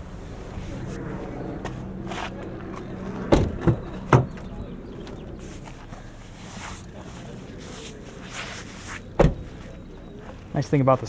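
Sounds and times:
low steady hum: 0.0 - 11.0
car door clunks: 3.3 - 4.4, 9.2 - 9.5.

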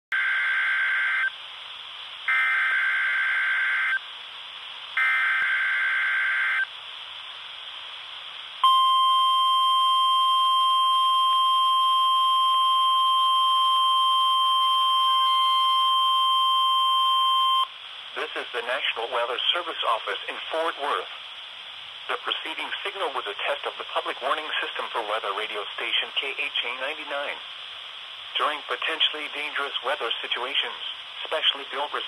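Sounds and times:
steady warning alarm tone: 2.3 - 4.0, 5.0 - 6.7, 8.6 - 17.7.

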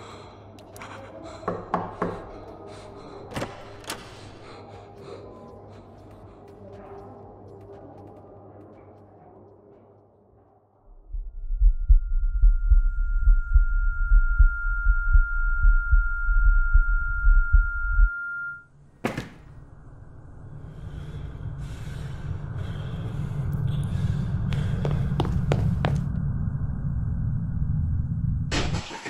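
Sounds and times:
low rumble: 10.9 - 18.1, 19.7 - 28.7
fast pounding heartbeat: 11.0 - 18.1
high-pitched ringing tone: 11.3 - 18.7.

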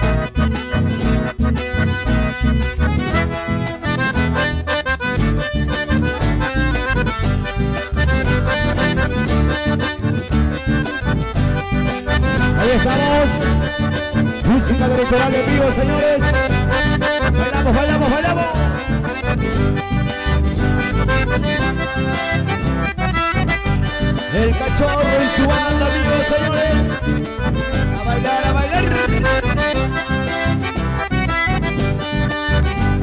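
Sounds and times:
accordion melody: 0.0 - 33.0
steady bass beat: 0.0 - 33.0.

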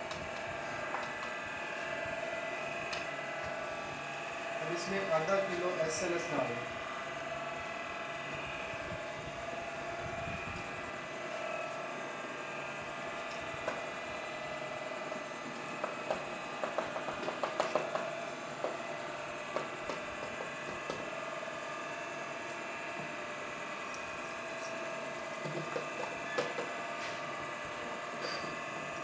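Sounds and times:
mixing machine motor running: 0.0 - 29.0.

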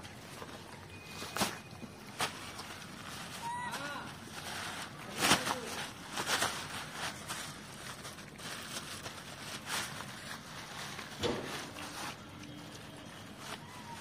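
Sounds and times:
monkeys rustling through dry brush: 0.0 - 14.0.

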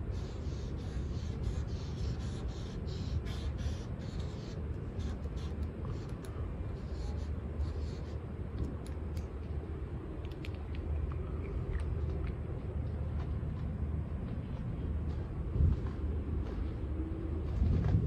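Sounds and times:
marker scratching on steel: 0.0 - 8.3
steady low rumble: 0.0 - 18.0.

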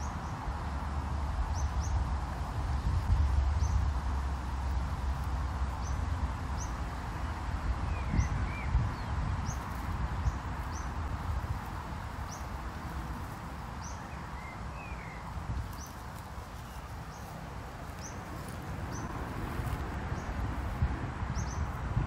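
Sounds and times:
wind rumble on microphone: 0.0 - 22.0
small bird chirping: 13.2 - 20.4.

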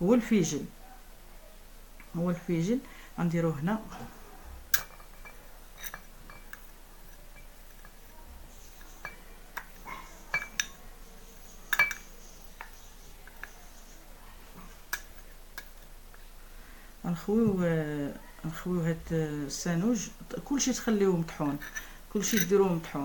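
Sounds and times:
spoon clinking against glass: 4.8 - 10.8, 11.4 - 12.8.

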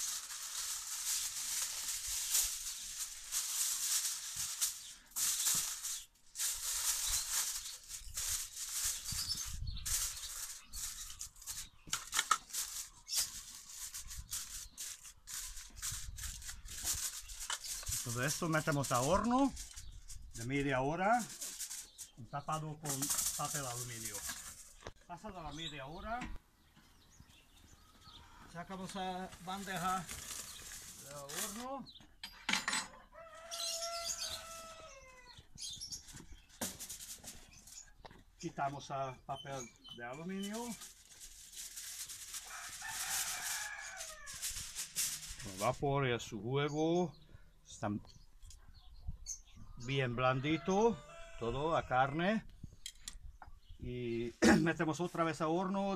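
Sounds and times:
aluminium foil crinkling: 0.0 - 25.0, 28.7 - 31.8, 35.6 - 38.0, 39.6 - 45.8.

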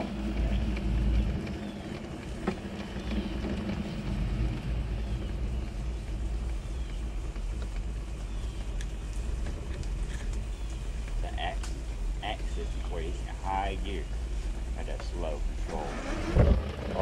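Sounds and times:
electric motor whining: 11.9 - 17.0.

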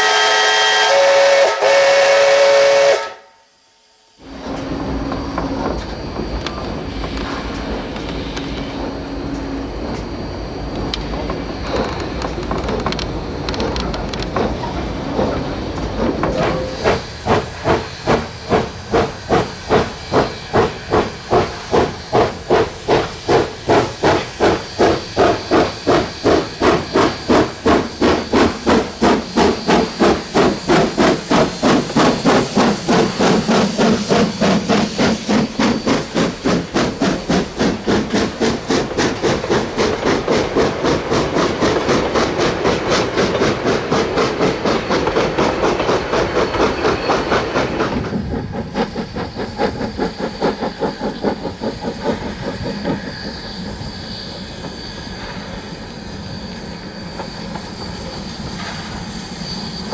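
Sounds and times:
steam locomotive exhaust chuffing: 4.2 - 59.9
train rumble: 4.2 - 59.9.

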